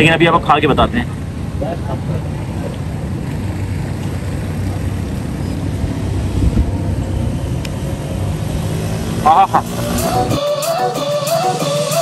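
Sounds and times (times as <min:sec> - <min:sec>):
vehicle engine rumble: 0:00.0 - 0:10.4.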